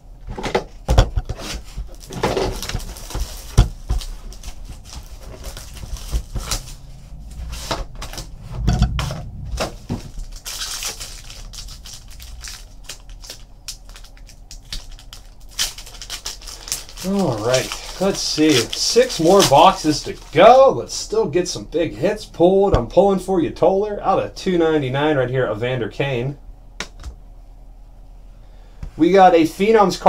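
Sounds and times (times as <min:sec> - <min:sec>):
plastic wrapper crinkling: 0:01.6 - 0:08.3, 0:09.3 - 0:20.5.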